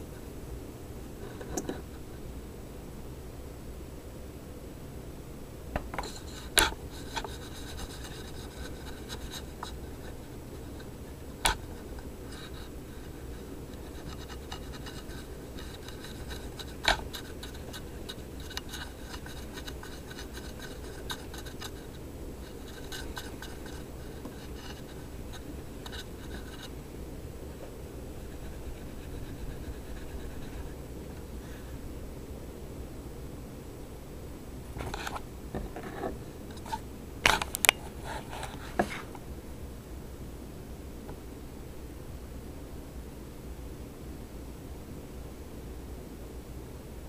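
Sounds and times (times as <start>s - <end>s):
fingers scraping on metal: 5.8s - 26.7s, 28.2s - 30.8s.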